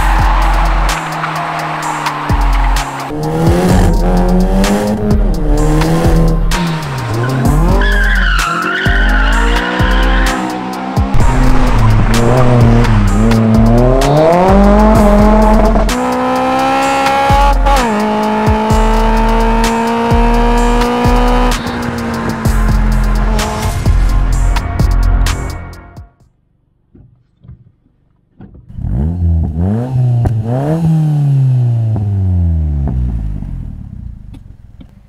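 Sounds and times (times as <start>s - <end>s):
car engine revving: 0.0s - 25.7s, 28.7s - 35.0s
music with pulsing bass beat: 0.0s - 26.2s
tyres squealing: 6.5s - 10.6s.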